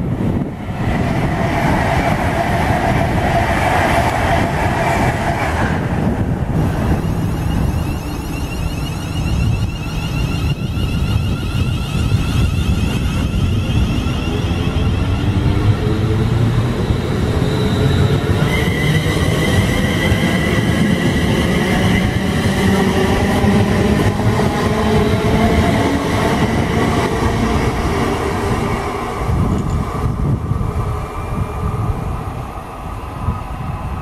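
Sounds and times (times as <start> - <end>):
electric train rumbling past: 0.0 - 34.0
train motor whine: 6.6 - 27.9.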